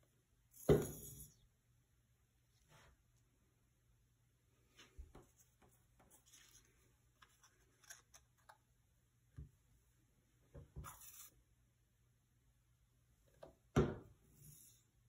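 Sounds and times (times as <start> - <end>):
paper rustling: 4.8 - 8.6.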